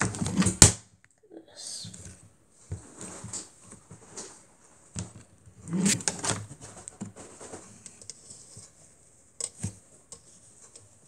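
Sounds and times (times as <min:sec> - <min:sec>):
plastic knocks and rustling: 0:02.7 - 0:08.1.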